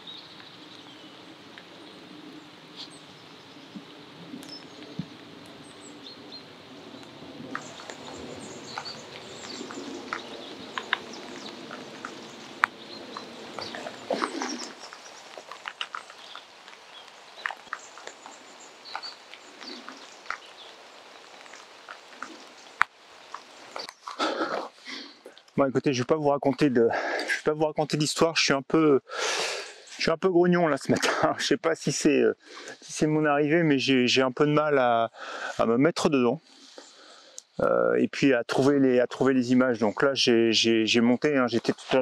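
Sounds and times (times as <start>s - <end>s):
birds calling: 0.0s - 25.5s
rain ticking and tapping: 3.1s - 24.7s.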